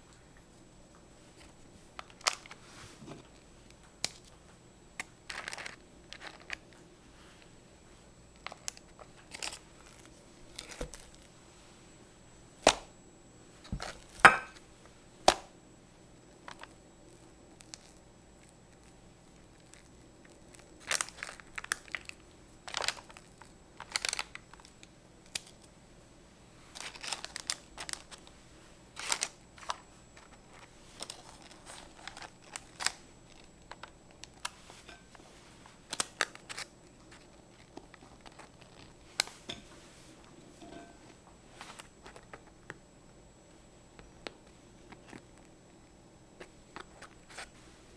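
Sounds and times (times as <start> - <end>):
parchment paper crinkling: 5.0 - 7.5, 8.3 - 11.3, 16.4 - 25.7, 26.6 - 40.2, 46.4 - 47.7.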